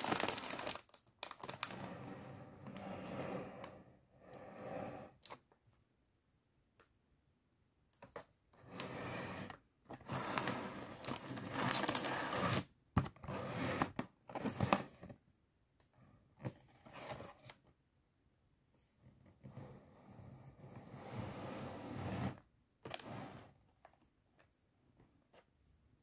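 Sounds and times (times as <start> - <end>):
cardboard box scraping: 8.7 - 15.0, 19.4 - 23.5.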